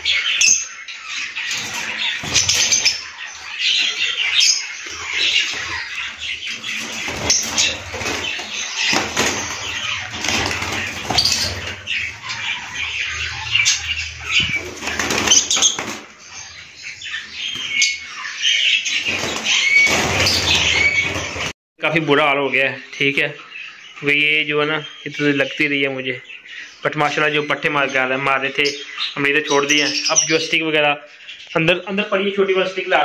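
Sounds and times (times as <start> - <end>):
bird chirps: 0.0 - 33.0
birds flapping wings: 6.5 - 12.8, 14.2 - 16.2, 19.0 - 21.5.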